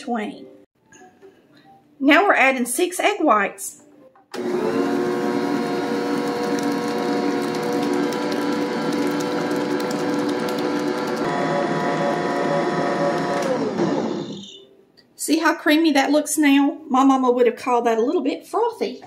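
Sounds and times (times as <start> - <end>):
stand mixer motor whine: 4.4 - 14.6.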